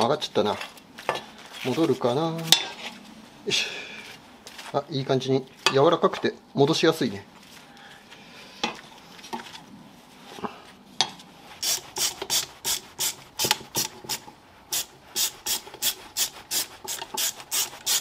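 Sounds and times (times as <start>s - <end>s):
hand tool rasping strokes: 11.6s - 18.0s.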